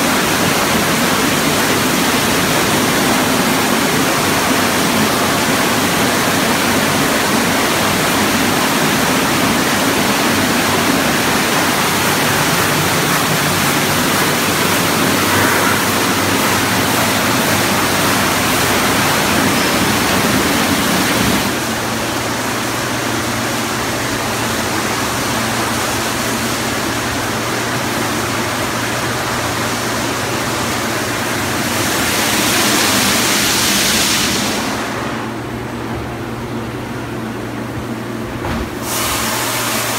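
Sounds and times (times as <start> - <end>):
steady machine hum: 0.0 - 39.9
loud hiss: 38.7 - 39.9
water spray: 38.8 - 39.9.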